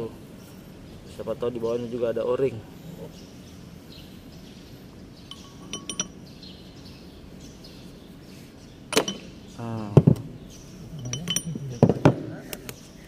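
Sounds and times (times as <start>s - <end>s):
light ringing metal clinks: 5.2s - 6.3s, 8.9s - 9.4s, 10.8s - 12.1s.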